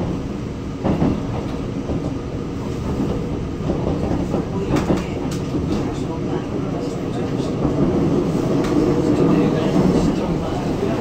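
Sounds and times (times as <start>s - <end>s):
train running noise: 0.0s - 11.0s.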